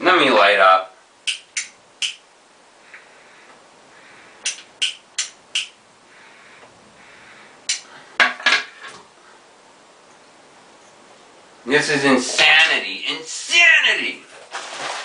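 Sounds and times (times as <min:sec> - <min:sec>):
breathy exhale: 0:02.8 - 0:04.5, 0:06.1 - 0:08.2.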